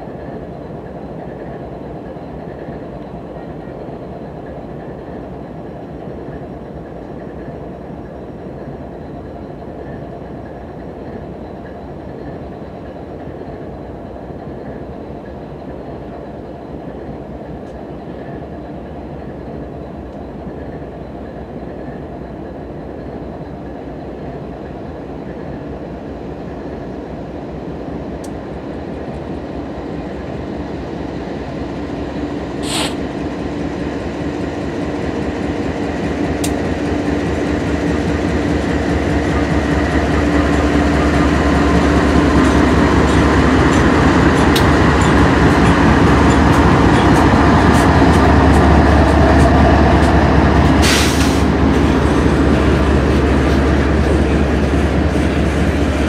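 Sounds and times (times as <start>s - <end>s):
diesel locomotive engines droning: 0.0s - 56.0s
train wheels on rails: 0.0s - 56.0s.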